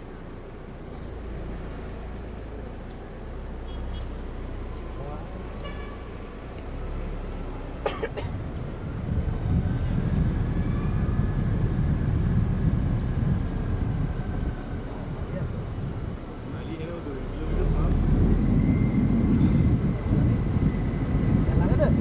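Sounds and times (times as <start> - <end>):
insects droning: 0.0 - 22.0
vehicle engine rumble: 0.0 - 22.0.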